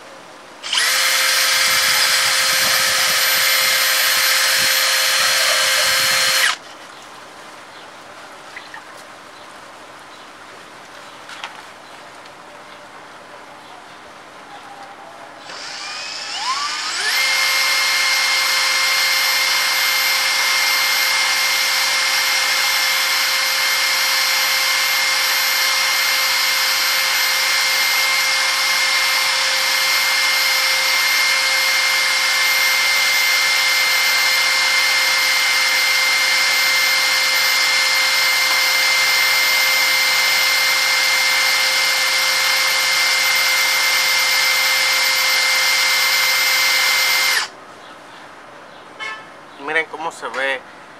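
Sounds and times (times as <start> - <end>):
electric drill whine: 0.6 - 6.6, 15.4 - 47.5.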